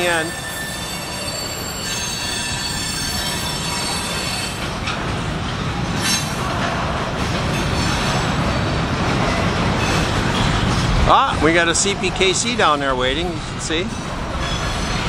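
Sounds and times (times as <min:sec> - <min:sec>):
train wheels squealing: 0:00.0 - 0:04.9, 0:13.7 - 0:15.0
train rumble: 0:00.0 - 0:15.0.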